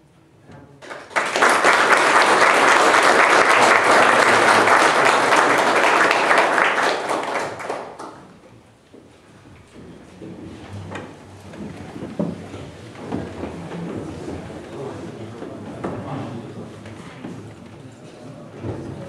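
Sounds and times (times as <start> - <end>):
people applauding: 0.8 - 8.5.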